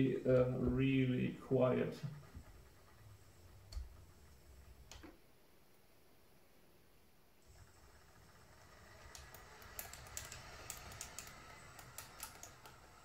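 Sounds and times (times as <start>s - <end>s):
motor hum and whine: 0.0s - 5.2s, 7.4s - 13.0s
track links clicking: 2.0s - 5.2s, 7.4s - 13.0s.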